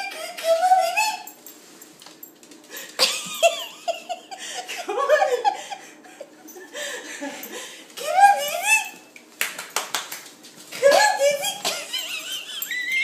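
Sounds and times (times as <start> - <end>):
person laughing: 3.0 - 6.4.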